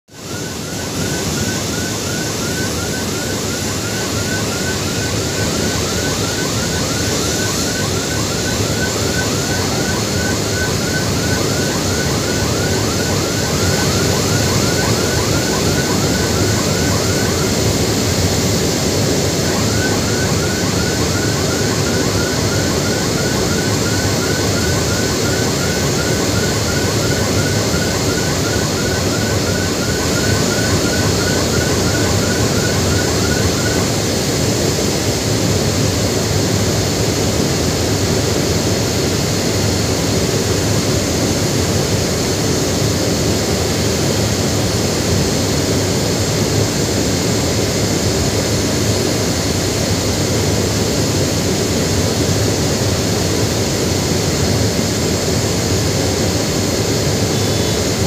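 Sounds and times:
jet aircraft noise: 0:00.1 - 0:58.0.

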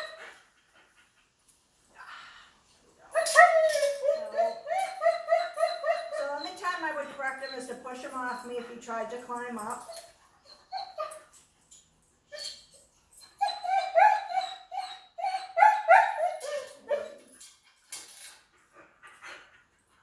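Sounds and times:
dog whining and yipping: 0:00.0 - 0:00.4, 0:03.1 - 0:07.8, 0:09.8 - 0:11.4, 0:12.3 - 0:17.6.

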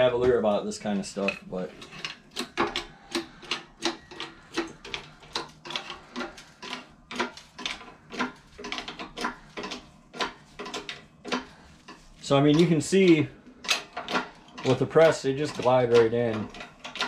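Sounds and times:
hand pumped press clicking: 0:01.8 - 0:12.7, 0:13.6 - 0:14.9.

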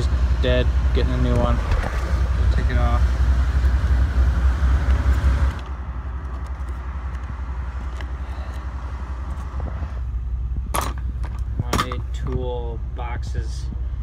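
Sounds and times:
pickup truck engine idling: 0:00.0 - 0:14.0
wind buffeting microphone: 0:09.4 - 0:12.2.

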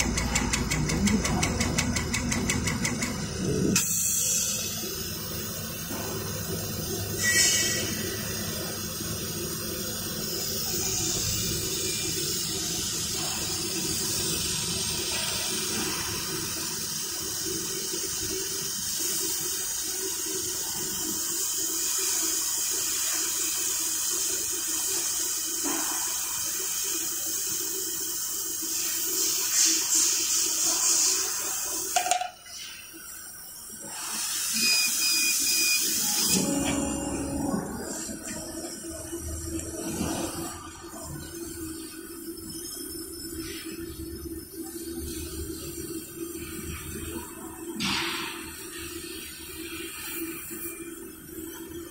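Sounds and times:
low machine hum: 0:00.0 - 0:03.8, 0:36.2 - 0:47.8
laser cutter hissing: 0:00.0 - 0:51.8.

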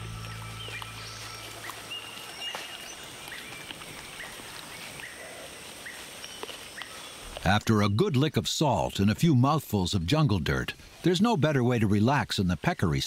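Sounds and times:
faint steady high whine: 0:00.0 - 0:03.2.

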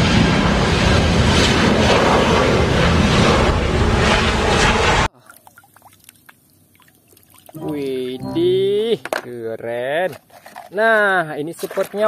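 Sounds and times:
jet engine noise: 0:00.0 - 0:05.1
water dripping: 0:05.2 - 0:08.2.

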